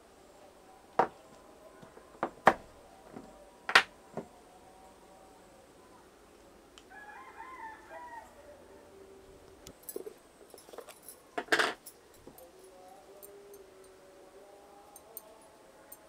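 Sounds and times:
rooster crowing: 6.9s - 9.1s.

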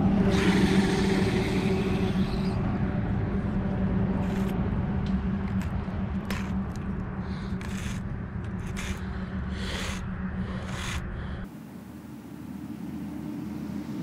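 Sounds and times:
fishing reel gears whirring: 8.6s - 11.1s.

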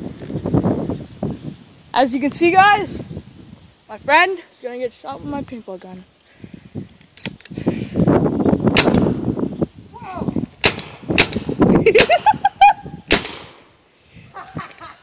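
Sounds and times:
paintball gun pops: 8.7s - 9.2s, 10.6s - 12.1s, 13.1s - 13.6s.

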